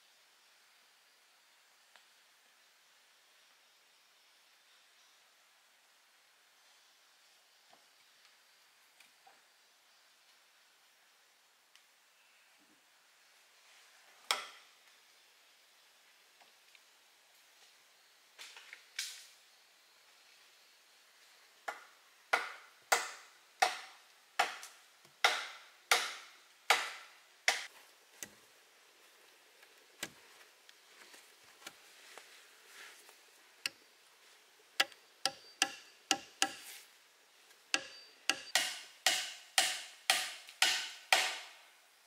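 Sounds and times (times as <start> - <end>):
hand tool chopping wood: 22.4 - 27.7, 34.8 - 36.8, 37.8 - 41.6.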